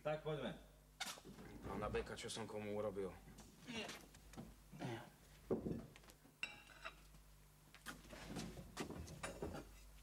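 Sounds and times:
crockery and cutlery clinking: 6.4s - 7.0s.

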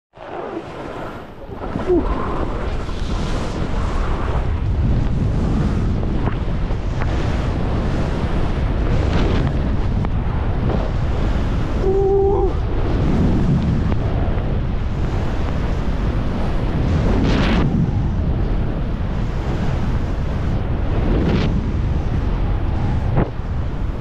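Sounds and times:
wind rushing over microphone: 0.1s - 24.0s
skis sliding on snow: 0.2s - 9.9s.

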